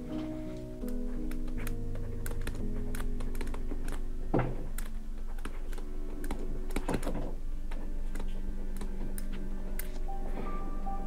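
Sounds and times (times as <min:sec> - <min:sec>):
background music: 0:00.0 - 0:11.0
stylus clicking and scratching on screen: 0:00.8 - 0:04.1.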